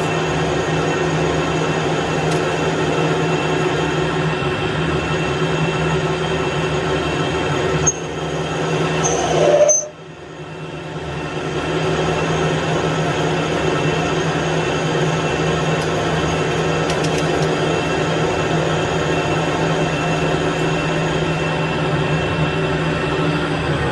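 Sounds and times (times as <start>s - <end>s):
metal lathe running: 0.0s - 23.9s
rising squeal: 7.8s - 10.0s.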